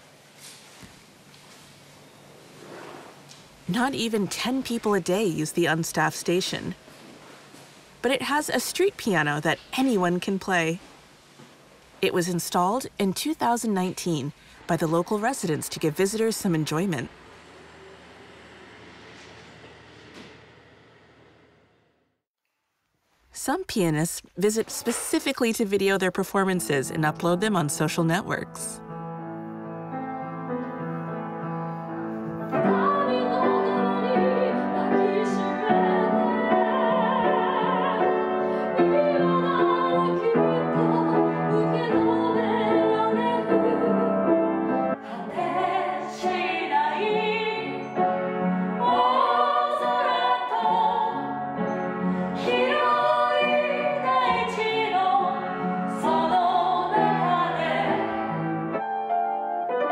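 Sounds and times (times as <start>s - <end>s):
upright piano playing: 26.3s - 59.9s
women singing operatically: 32.6s - 44.3s, 45.0s - 48.0s, 48.8s - 51.4s, 52.4s - 58.3s.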